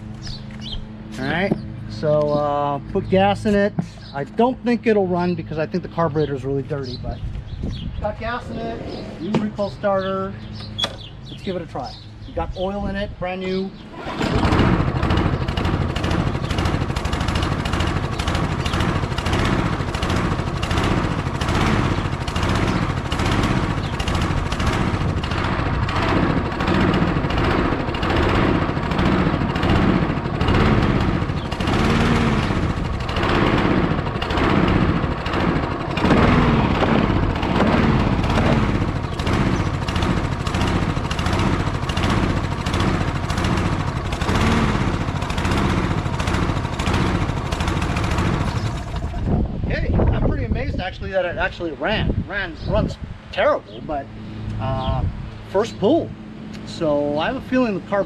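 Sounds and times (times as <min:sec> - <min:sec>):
lawn mower engine running roughly: 0:13.8 - 0:50.8.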